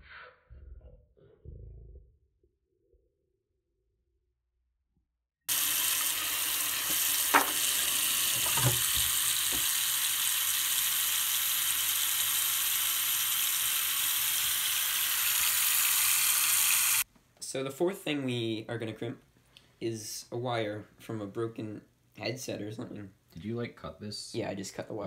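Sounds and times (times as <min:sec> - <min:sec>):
tap water splashing into sink: 0:06.8 - 0:09.8.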